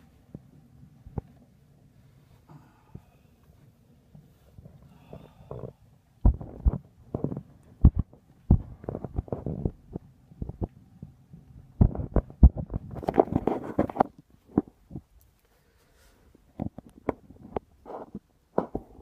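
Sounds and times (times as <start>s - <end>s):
thumps against microphone: 4.2s - 10.7s, 11.8s - 15.1s, 16.6s - 19.0s.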